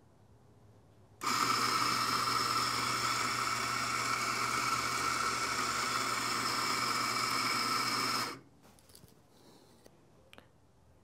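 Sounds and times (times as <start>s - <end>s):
coffee grinder whining: 1.2s - 8.4s.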